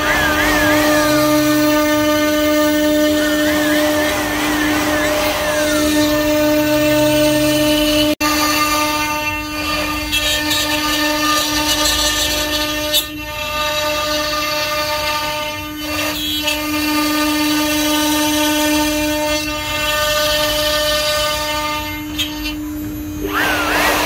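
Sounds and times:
power tool motor whining: 0.0s - 7.4s, 22.1s - 24.0s.

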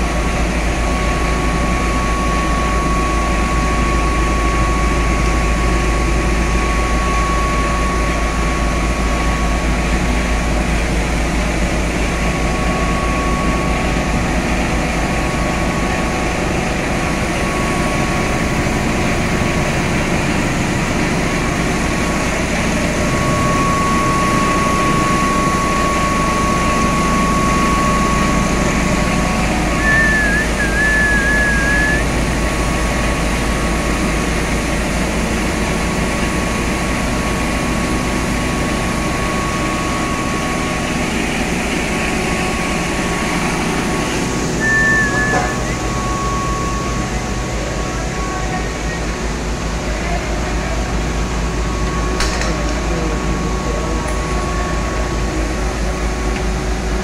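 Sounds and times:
machine drone with high whine: 0.0s - 57.0s
wavering high whistle: 22.8s - 32.2s, 43.7s - 49.0s.

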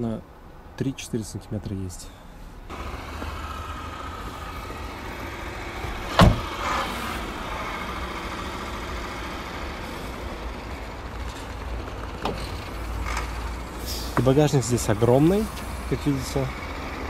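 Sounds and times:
car door slamming: 6.0s - 6.7s.

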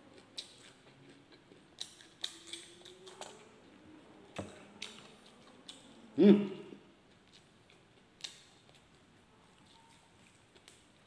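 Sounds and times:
chewing and lip smacks: 0.1s - 6.0s, 7.1s - 11.0s.

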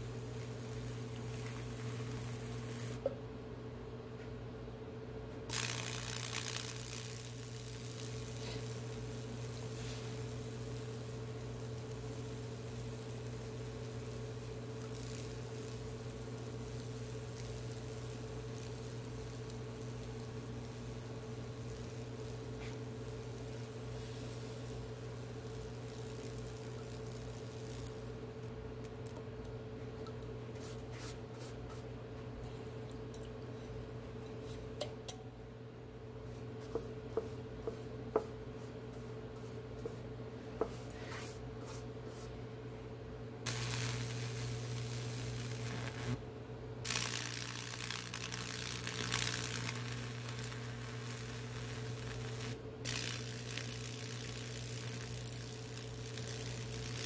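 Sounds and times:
electric arc sizzling crackle: 0.0s - 3.0s, 5.5s - 29.2s, 43.4s - 46.2s, 46.8s - 57.0s.

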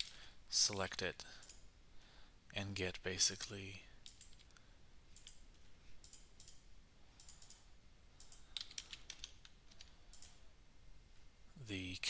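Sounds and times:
keyboard and mouse clicks: 4.0s - 6.6s, 7.2s - 7.6s, 8.2s - 10.4s.

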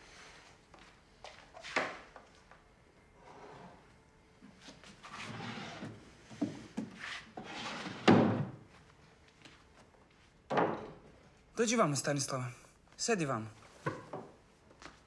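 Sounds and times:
drawer sliding: 5.0s - 6.6s, 7.4s - 8.6s.

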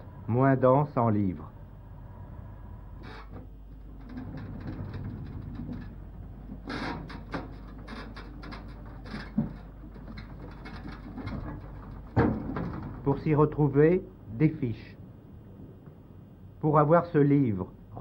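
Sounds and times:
shelving rolling on rails: 1.7s - 14.3s
shelving clunks and clicks: 3.0s - 13.2s.

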